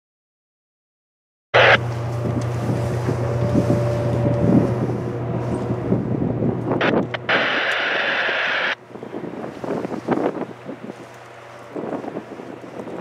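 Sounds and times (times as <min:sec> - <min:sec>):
steady low rumble: 0:01.6 - 0:13.0
wind buffeting microphone: 0:01.8 - 0:13.0
loud hiss: 0:06.8 - 0:08.8.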